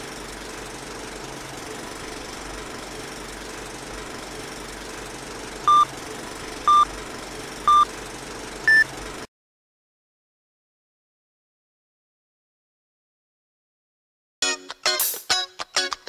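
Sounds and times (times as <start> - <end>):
short beeps: 5.7 - 5.9, 6.7 - 6.9, 7.7 - 7.9, 8.7 - 8.9.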